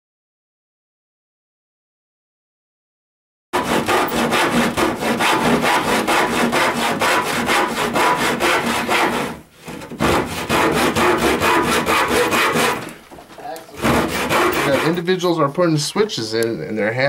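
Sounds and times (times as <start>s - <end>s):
handsaw cutting wood: 3.6s - 13.0s, 13.7s - 15.3s.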